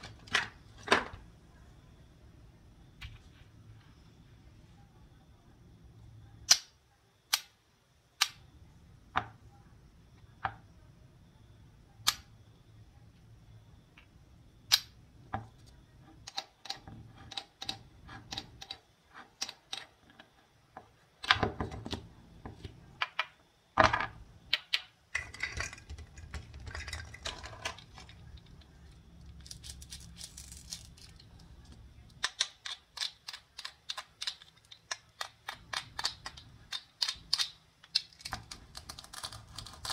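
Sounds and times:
toy food pieces scraping: 29.2s - 39.9s.

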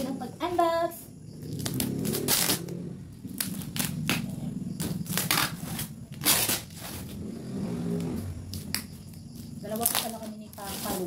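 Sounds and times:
packing tape ripping: 1.5s - 2.7s, 3.3s - 7.2s, 9.7s - 11.0s.

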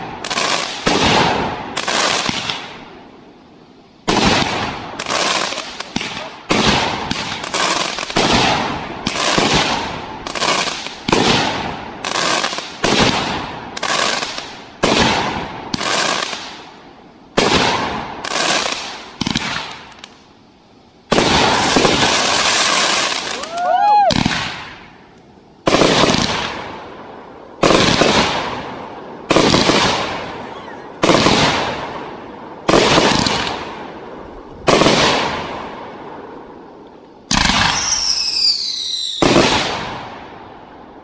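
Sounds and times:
firework crackle: 0.0s - 41.0s
firework shells bursting: 32.6s - 33.9s.

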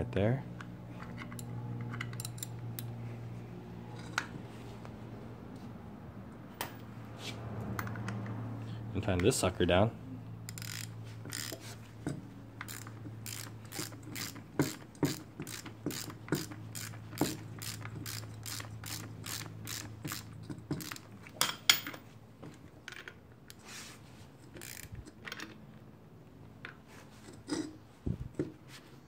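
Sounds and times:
ratchet wrench clicking: 1.2s - 2.9s, 10.5s - 11.8s, 12.6s - 21.1s, 24.5s - 25.2s.

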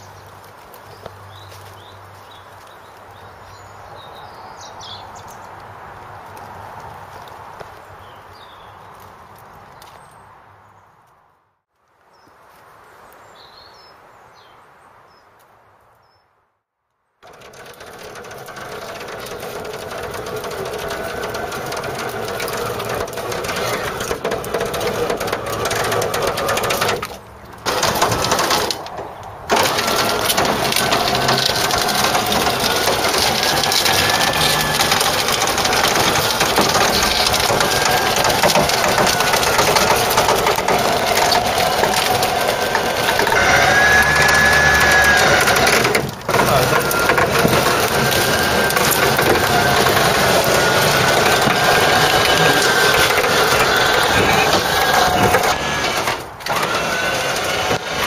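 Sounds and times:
branches crunching: 0.0s - 13.6s, 17.2s - 58.0s
electric winch motor whirring: 17.2s - 58.0s.

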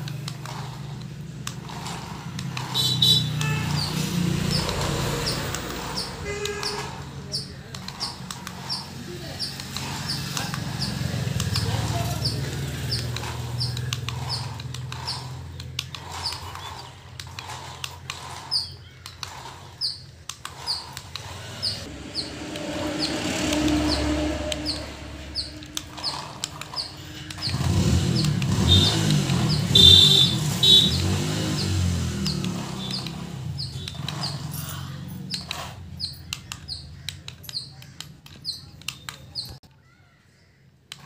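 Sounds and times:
small bird chirping: 2.6s - 40.7s
low hum: 21.9s - 28.6s.

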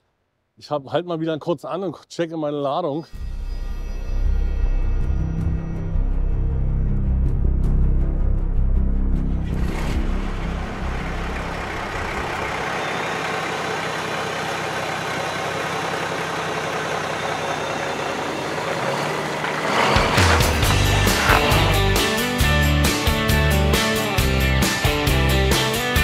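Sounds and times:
background music: 3.2s - 12.4s, 19.6s - 26.0s
vehicle noise rushing: 9.4s - 24.0s.

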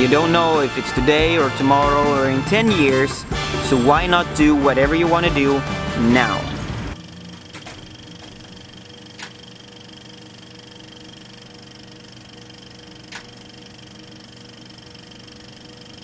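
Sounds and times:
film projector whirring: 0.0s - 3.6s, 6.6s - 16.0s
sharp projector clicks: 7.4s - 9.6s, 13.0s - 13.7s.

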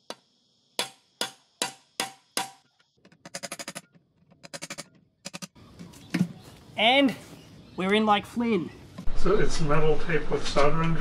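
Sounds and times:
rapid metallic clicks: 3.0s - 5.6s.

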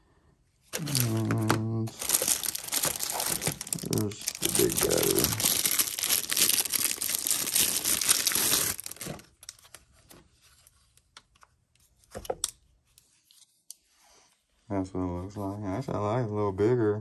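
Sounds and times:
plastic bag crinkling and tearing: 0.7s - 9.8s.

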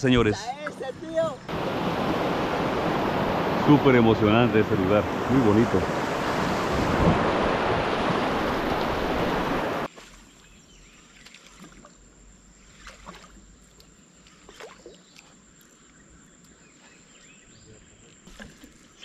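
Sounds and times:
wind: 0.0s - 19.0s
river water rushing: 1.5s - 9.9s.

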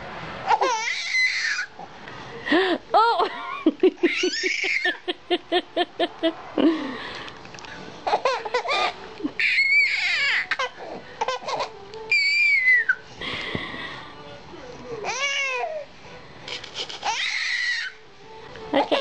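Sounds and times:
baby laughing and squealing: 0.4s - 1.8s, 3.3s - 5.1s, 8.1s - 13.0s, 16.5s - 18.0s.

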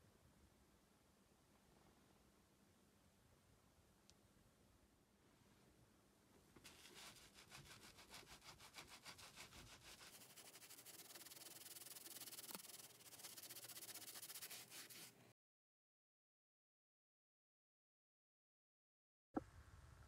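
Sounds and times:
cloth scrubbing leather: 6.6s - 15.2s.

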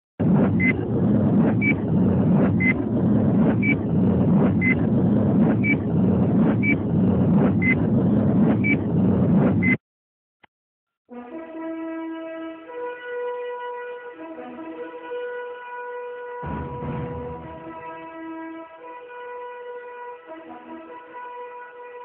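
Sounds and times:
steady loud rumbling noise: 0.2s - 9.8s, 16.4s - 18.2s.

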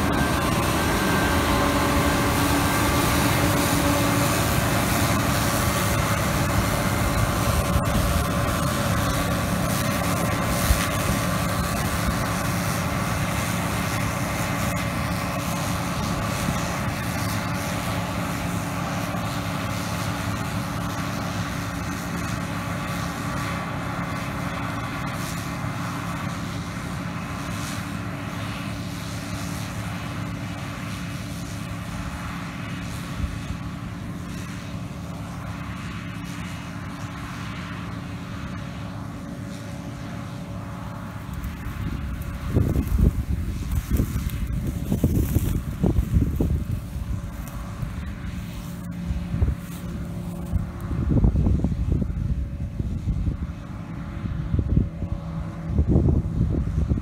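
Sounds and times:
machine whining tones: 0.0s - 21.9s
combine harvester engine drone: 0.0s - 57.0s.

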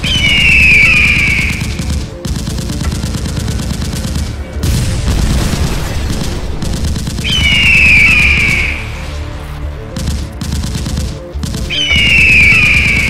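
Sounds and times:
cartoon machine-gun firing: 0.0s - 9.0s, 10.0s - 13.0s
rushing blast: 4.2s - 9.2s.

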